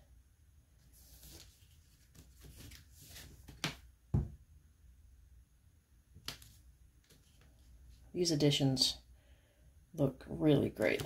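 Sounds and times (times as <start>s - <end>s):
book dust jacket rustling: 0.8s - 3.7s
book thudding on countertop: 3.5s - 4.4s.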